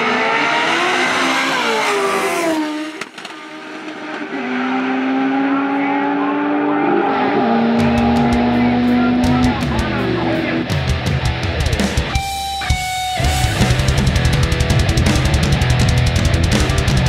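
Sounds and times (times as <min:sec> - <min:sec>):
distant race engines droning: 0:00.0 - 0:10.7
race car accelerating past: 0:00.0 - 0:10.7.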